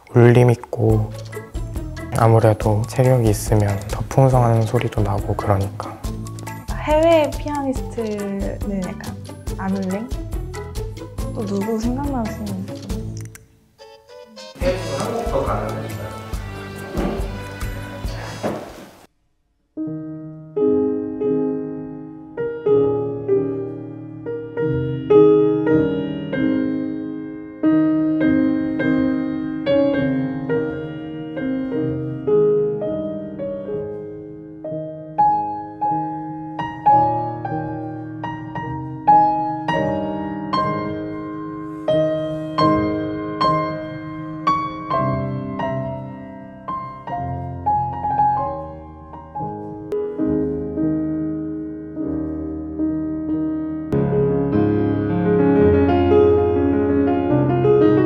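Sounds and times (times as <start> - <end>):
classical grand piano piece: 14.5 - 19.1, 19.8 - 58.0.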